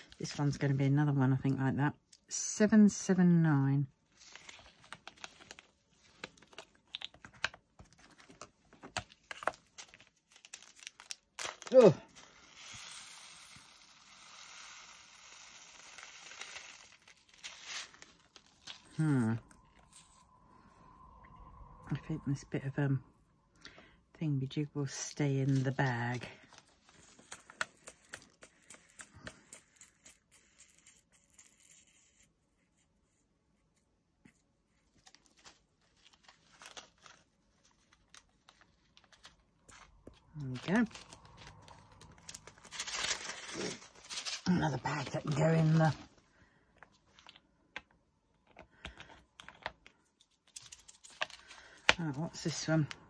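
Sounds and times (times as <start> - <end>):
plastic bag crinkling: 4.2 - 20.4, 35.0 - 46.2.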